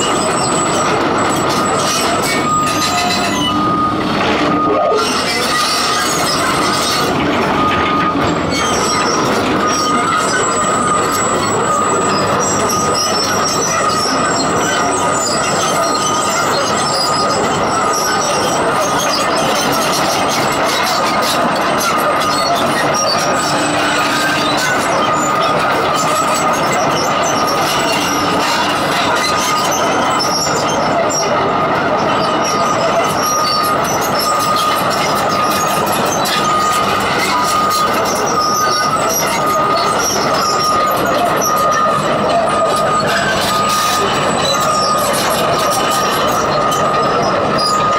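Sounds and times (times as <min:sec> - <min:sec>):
high-pitched tone: 0:00.0 - 0:19.4
excavator diesel engine: 0:00.0 - 0:47.9
high-pitched squeal: 0:00.0 - 0:47.9
track chains running: 0:00.0 - 0:47.9.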